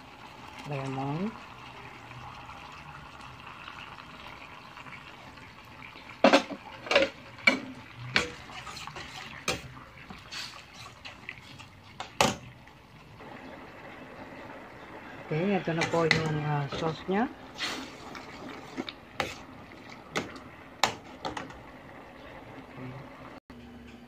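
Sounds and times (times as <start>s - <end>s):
liquid pouring into a pan: 0.0s - 15.2s
sauce simmering: 0.0s - 23.4s.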